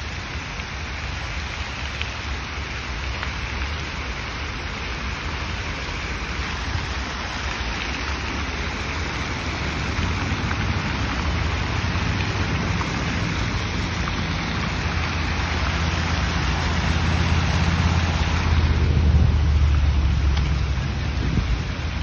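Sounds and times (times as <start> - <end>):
fountain jets splashing into pool: 0.0 - 22.0
low rumble: 11.4 - 22.0.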